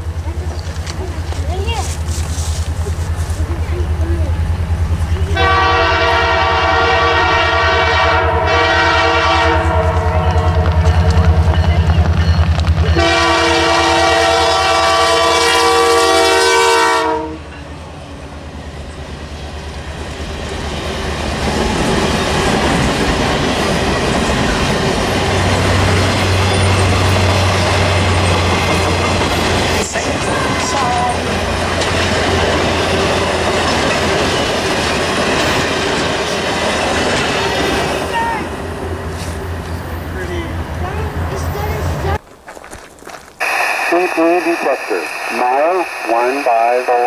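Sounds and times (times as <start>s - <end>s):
locomotive engine rumble: 0.0s - 7.8s, 17.4s - 47.0s
locomotive horn blast: 5.3s - 10.8s, 13.0s - 17.6s
train cars clattering over rails: 19.8s - 38.1s.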